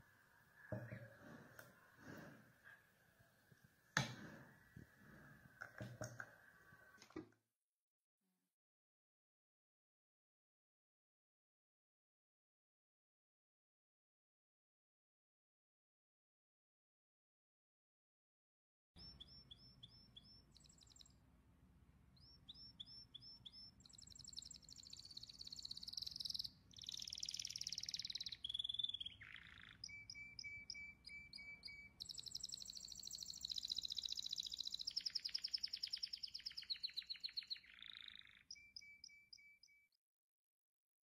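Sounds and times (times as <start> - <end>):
songbird chirping and trilling: 19.0 - 21.2, 22.1 - 40.0.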